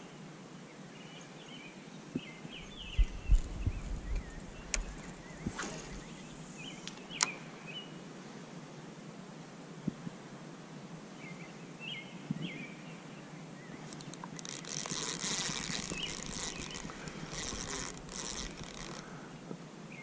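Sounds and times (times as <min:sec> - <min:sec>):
bird chirps: 0:02.6 - 0:08.0
river ambience: 0:04.2 - 0:09.7, 0:10.3 - 0:20.0
hissing rustling noise: 0:04.9 - 0:07.7, 0:13.8 - 0:19.3.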